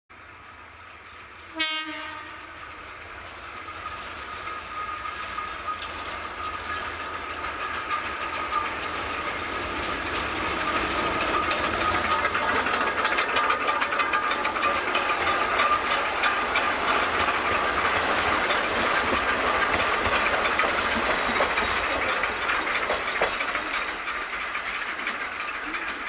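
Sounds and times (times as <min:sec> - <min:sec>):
locomotive rumble and whine: 0:00.2 - 0:26.0
locomotive horn blast: 0:01.4 - 0:02.6.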